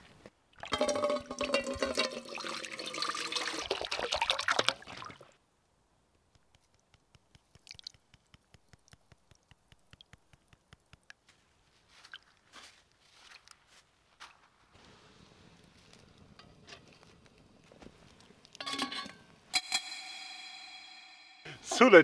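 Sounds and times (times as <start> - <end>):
salt pouring into water: 0.5 - 5.4, 7.2 - 10.1
water pouring into metal pot: 0.6 - 5.3.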